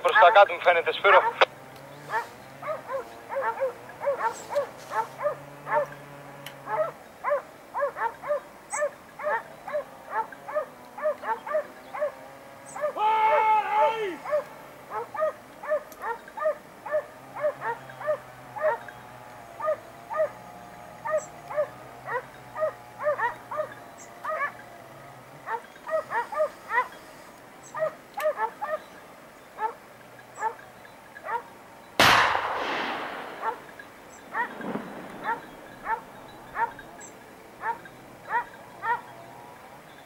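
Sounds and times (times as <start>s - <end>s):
hunting dogs baying: 0.0s - 40.0s
gunshot echoing: 32.0s - 36.5s.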